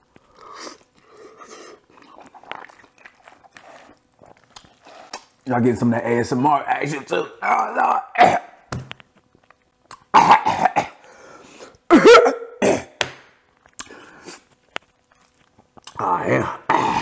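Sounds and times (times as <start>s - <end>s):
man coughing: 10.2s - 11.0s, 11.9s - 13.0s.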